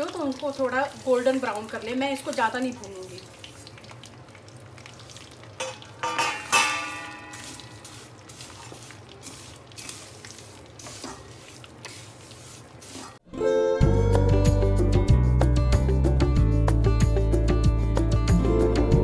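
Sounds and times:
spatula knocking on steel pan: 0:05.6 - 0:07.4
spatula scraping dry noodles in pan: 0:07.3 - 0:13.2
background music: 0:13.3 - 0:19.0.

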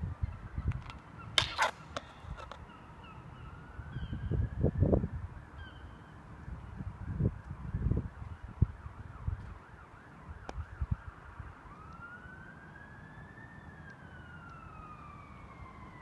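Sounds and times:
wind and handling on microphone: 0:00.0 - 0:02.8, 0:06.5 - 0:11.2
distant emergency siren: 0:01.6 - 0:16.0.

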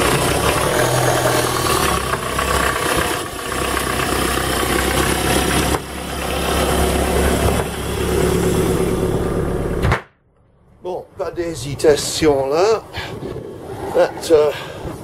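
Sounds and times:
diesel engine idling: 0:00.0 - 0:09.8.

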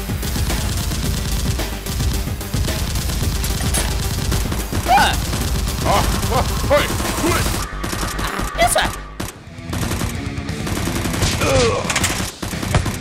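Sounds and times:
background music: 0:00.0 - 0:13.0
automatic gunfire bursts: 0:00.3 - 0:08.3.

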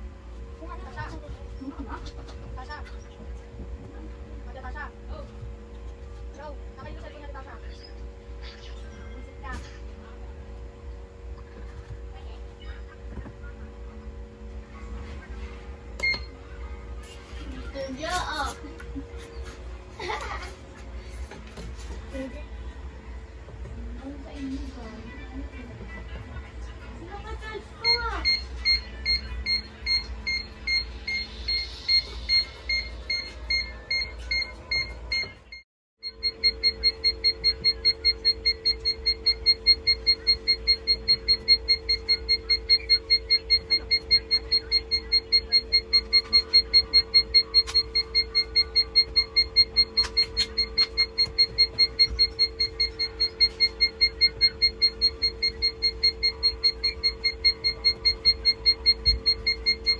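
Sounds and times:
steady hum: 0:00.0 - 0:59.9
rapid high alarm beeps: 0:27.3 - 0:59.9.

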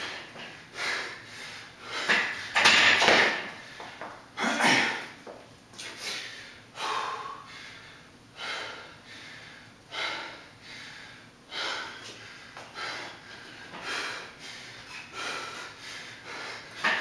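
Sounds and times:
man breathing hard: 0:00.0 - 0:02.6, 0:05.8 - 0:17.0.

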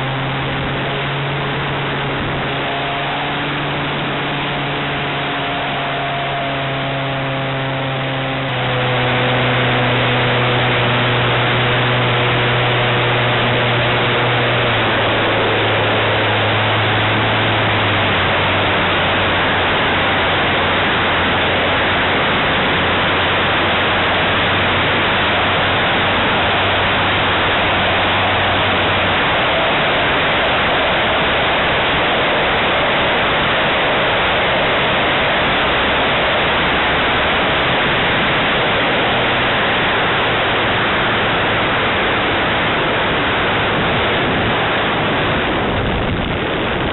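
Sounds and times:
wind on microphone: 0:00.0 - 0:05.6, 0:06.3 - 0:46.9
model airplane engine: 0:00.0 - 0:46.9.

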